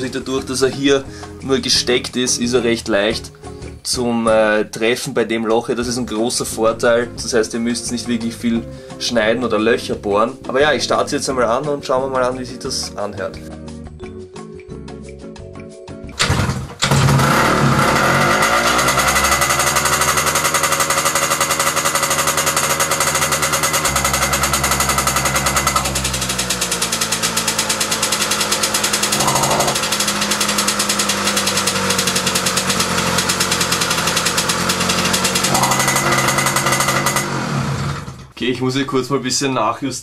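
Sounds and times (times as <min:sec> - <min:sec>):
two-stroke moped engine running: 0:16.2 - 0:38.3.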